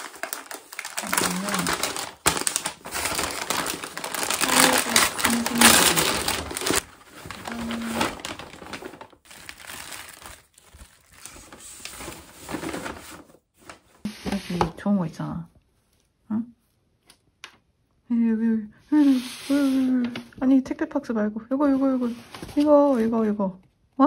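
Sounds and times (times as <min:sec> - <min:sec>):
packaging crinkling and rustling: 0:00.0 - 0:14.1.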